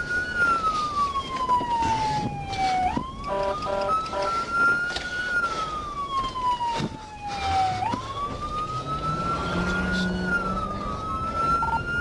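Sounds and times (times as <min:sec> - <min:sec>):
emergency vehicle siren wailing: 0:00.0 - 0:12.0
vehicle engine revving: 0:07.4 - 0:11.6.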